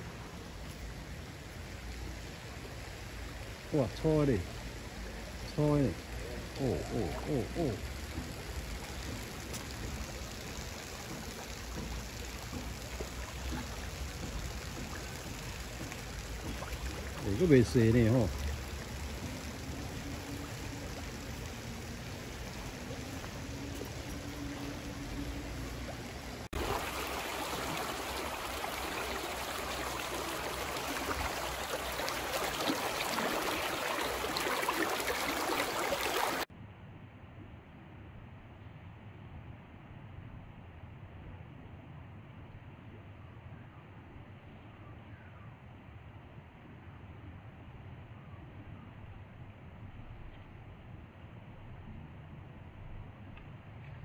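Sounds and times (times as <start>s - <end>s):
creek water running over rocks: 0.0s - 36.5s.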